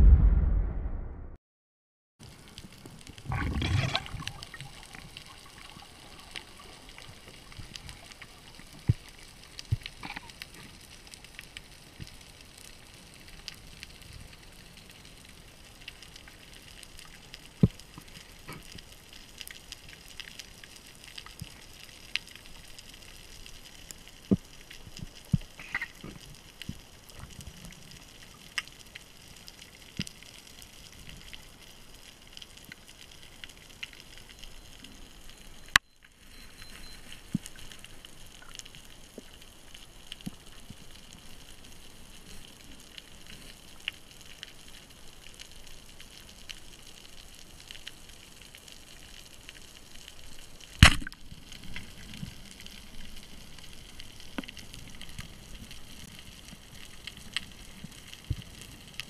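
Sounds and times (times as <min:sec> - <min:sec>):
underwater crackling clicks: 0:02.6 - 0:14.0, 0:15.8 - 0:31.3, 0:50.7 - 0:59.0.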